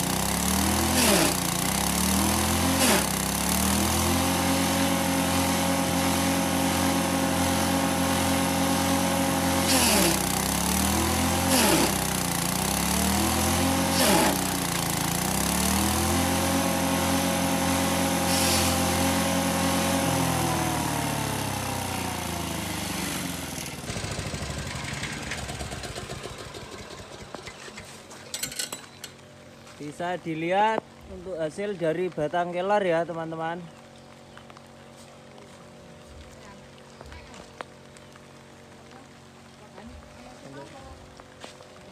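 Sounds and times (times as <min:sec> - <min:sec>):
stationary engine running: 0:00.0 - 0:27.8.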